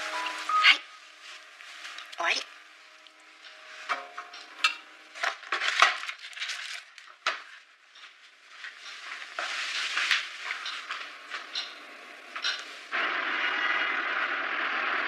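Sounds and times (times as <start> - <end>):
rustling: 5.5 - 11.5.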